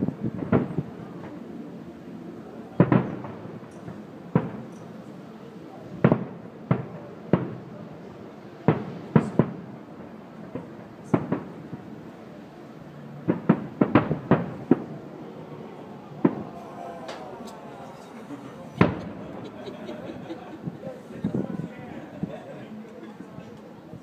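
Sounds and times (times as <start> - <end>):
firework shells bursting: 18.8 - 19.5.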